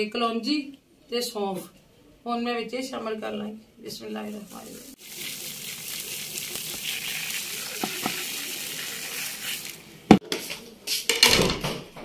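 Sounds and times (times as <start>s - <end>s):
seeds pattering onto food: 4.3s - 9.8s.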